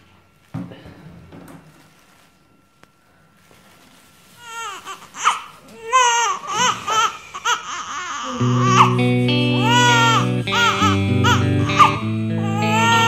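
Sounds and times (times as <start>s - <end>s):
newborn baby crying: 4.4s - 13.0s.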